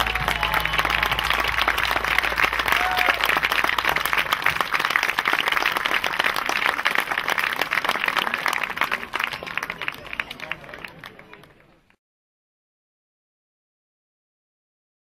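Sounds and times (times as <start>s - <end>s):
band holding low note: 0.0s - 4.0s
audience applauding: 0.0s - 11.8s.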